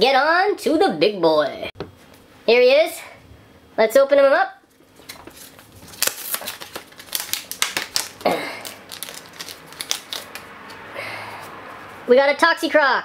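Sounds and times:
card pack wrapper crinkling: 5.0 - 10.5.

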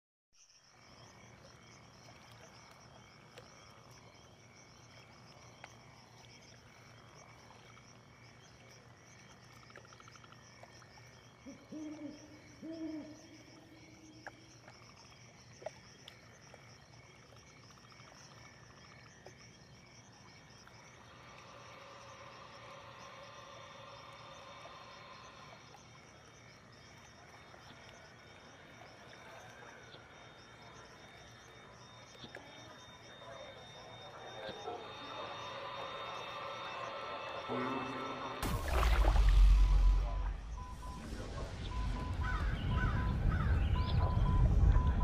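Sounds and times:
night insects chorus: 0.4 - 45.0
faint ticks: 2.0 - 4.0, 4.8 - 7.9
owl hooting: 11.4 - 14.1, 41.1 - 44.5.

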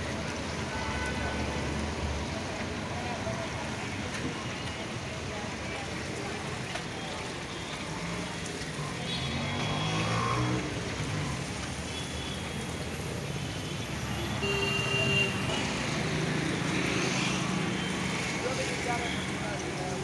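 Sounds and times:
motor vehicles passing: 7.9 - 11.9, 15.3 - 20.0.

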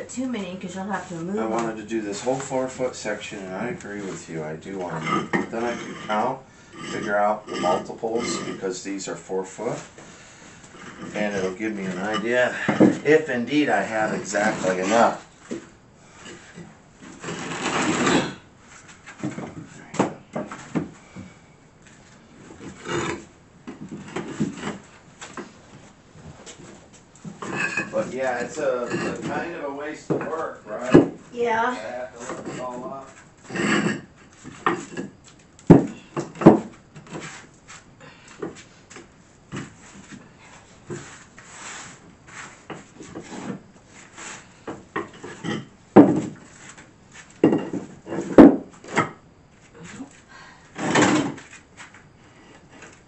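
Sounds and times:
tiles scraping on hard floor: 3.9 - 8.7, 10.8 - 15.6, 16.2 - 19.7, 22.6 - 25.4, 26.4 - 29.5, 32.2 - 35.2, 40.9 - 49.1, 50.8 - 51.9
tiles knocking and scraping: 4.9 - 6.2, 10.8 - 13.2, 22.6 - 24.8, 27.2 - 29.4, 33.5 - 37.3, 44.7 - 46.4, 47.4 - 49.2.

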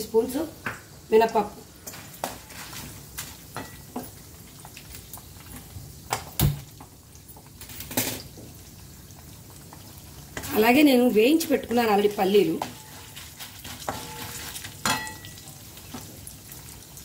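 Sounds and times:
lentils frying in oil: 0.0 - 17.0
wooden spatula scraping a pan: 1.9 - 3.4, 12.1 - 15.0.

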